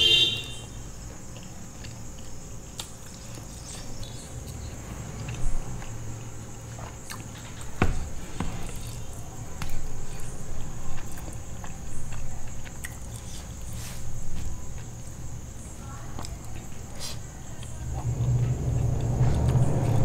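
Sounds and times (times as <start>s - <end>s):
chewing and lip smacks: 11.0s - 13.7s.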